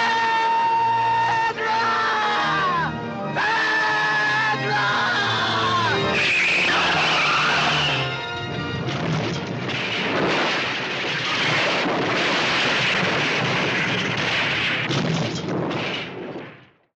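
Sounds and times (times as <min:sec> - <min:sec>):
music: 0:00.0 - 0:11.1.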